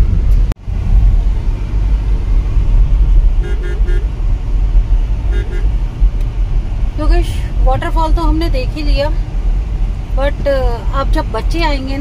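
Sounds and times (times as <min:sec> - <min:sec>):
car driving rumble: 0:00.0 - 0:12.0
car horn beeps: 0:03.4 - 0:04.1, 0:05.3 - 0:05.8.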